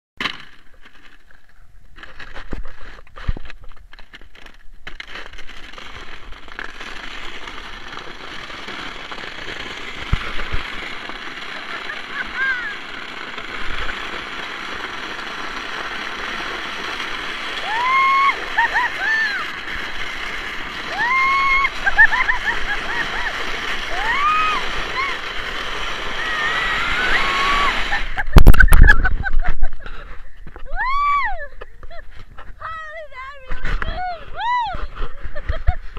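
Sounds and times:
knocks and crackles on ice: 0:00.2 - 0:30.9
scraping hiss sliding on ice: 0:02.0 - 0:29.0.

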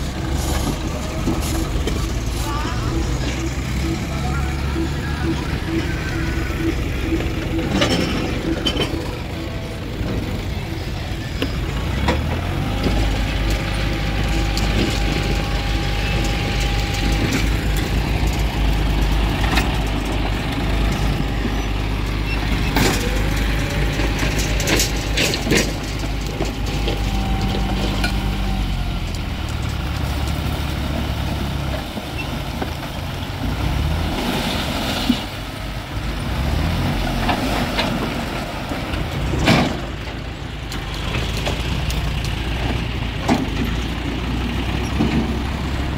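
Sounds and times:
tractor engine running: 0:00.0 - 0:45.9
knocks and clatter: 0:06.6 - 0:28.4, 0:37.2 - 0:45.9
soil and rocks sliding: 0:08.0 - 0:45.9.

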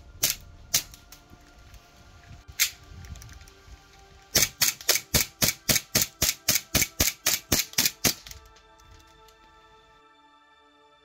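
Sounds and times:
airsoft pistol shots: 0:04.4 - 0:08.3.

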